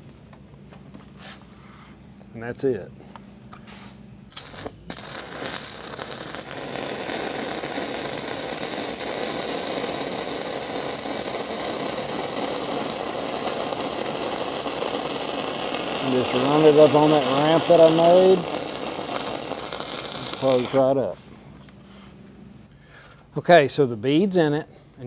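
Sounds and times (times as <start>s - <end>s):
welding arc burning: 4.3s - 21.1s.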